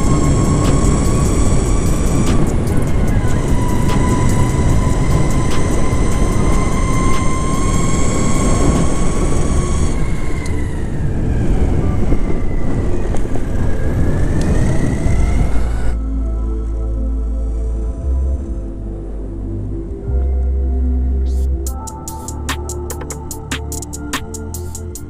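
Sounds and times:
electric skateboard motors whining: 0.0 - 16.0
rumble of wheels: 0.0 - 20.6
wind: 0.0 - 25.0.

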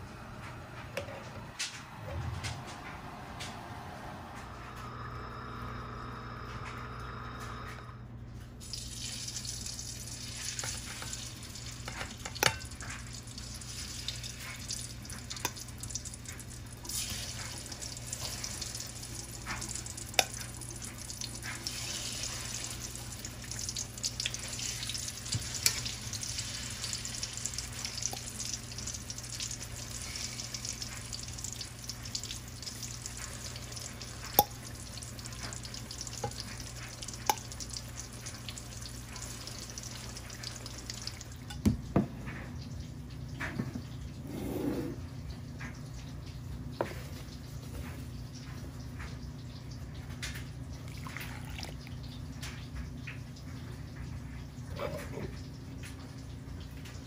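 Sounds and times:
frying oil sizzling: 8.6 - 44.3.

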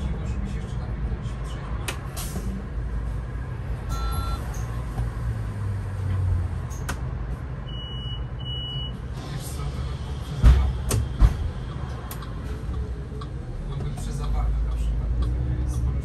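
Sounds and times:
bus engine rumbling: 0.0 - 16.0
electronic beeps: 3.9 - 4.7.

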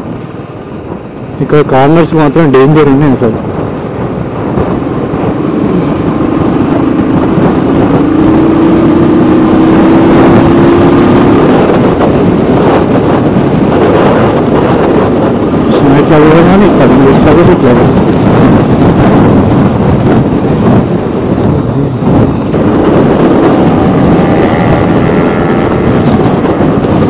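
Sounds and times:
wind rush on microphone: 0.0 - 27.0
motorcycle engine: 3.7 - 17.1, 17.8 - 27.0.

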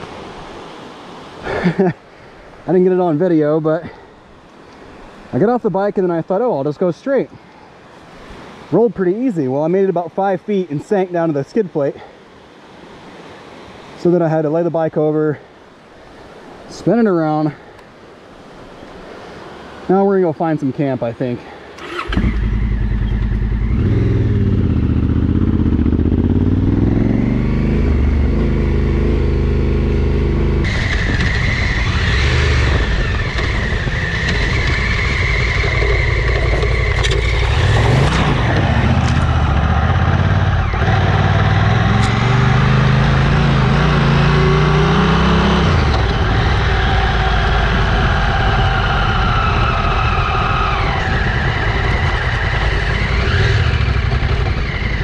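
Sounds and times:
motorcycle engine revving: 21.8 - 55.0.

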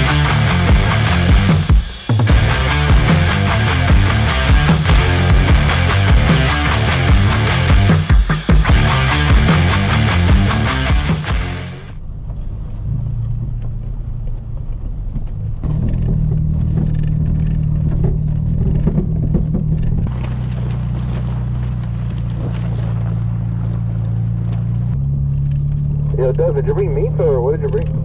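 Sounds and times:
truck engine running: 0.0 - 28.0.

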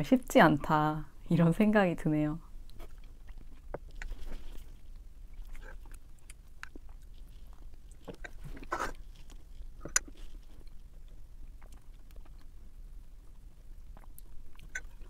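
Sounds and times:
soft chewing and mouth sounds: 2.4 - 15.0
rustle: 2.6 - 12.5.

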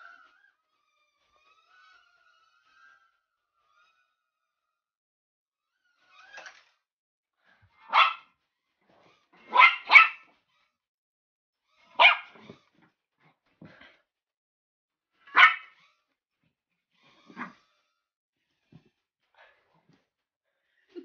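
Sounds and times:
puppy barking: 7.8 - 8.3, 9.4 - 10.3, 12.0 - 12.5, 15.3 - 15.8.

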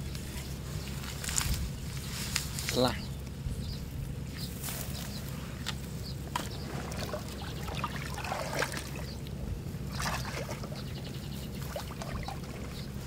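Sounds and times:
water trickling and sloshing: 6.3 - 13.0
water splashing: 6.6 - 13.0.

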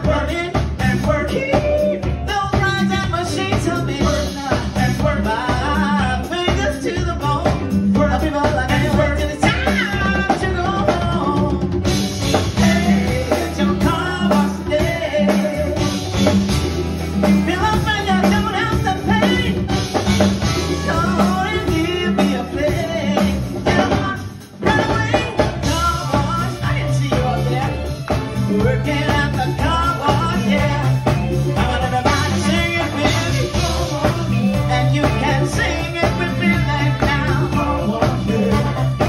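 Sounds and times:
woman singing lead: 0.0 - 16.5, 17.2 - 39.0
funk band playing: 0.0 - 39.0
horns playing: 15.7 - 22.7, 31.6 - 34.3.

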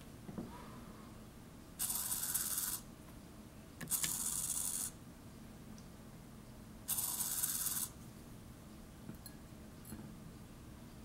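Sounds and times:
micro servo whirring: 1.8 - 2.8, 3.9 - 4.9.

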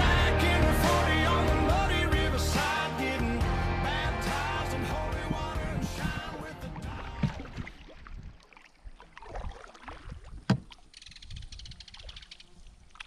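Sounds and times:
paddle water sounds: 2.6 - 13.0
light knocks on canoe: 10.5 - 10.8.

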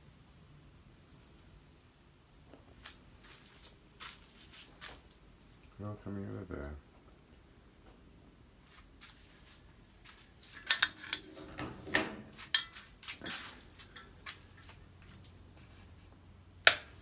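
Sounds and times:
clinks and knocks: 10.5 - 14.8
light switch click: 16.7 - 16.9.

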